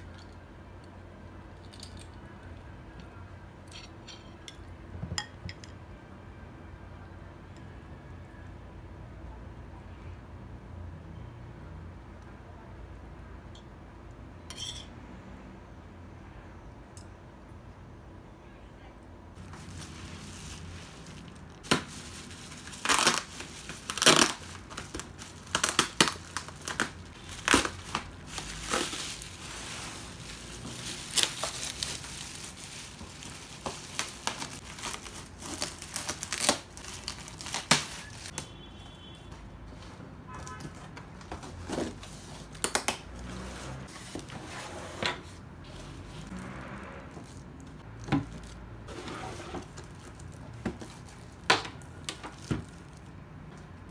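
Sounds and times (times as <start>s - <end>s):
plastic packaging crinkling: 19.4s - 38.4s, 46.3s - 53.2s.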